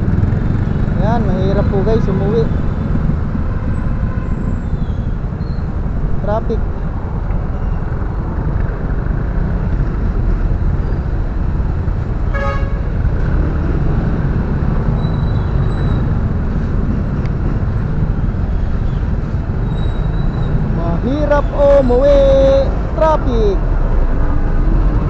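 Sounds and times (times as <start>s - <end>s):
motorcycle riding in traffic: 0.0s - 25.0s
vehicle horn toot: 12.3s - 12.9s.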